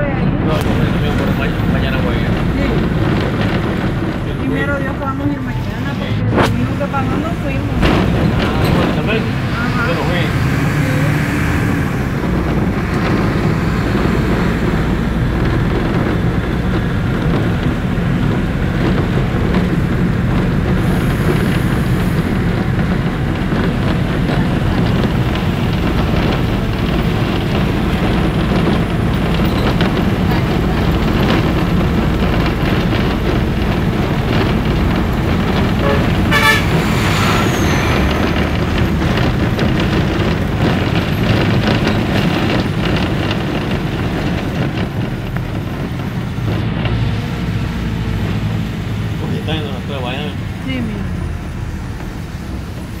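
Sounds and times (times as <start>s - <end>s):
engine and road rumble: 0.0s - 53.0s.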